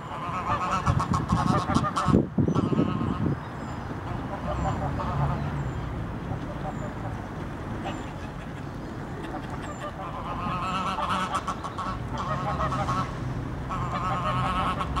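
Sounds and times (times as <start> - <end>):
geese honking: 0.0 - 3.3, 9.2 - 15.0.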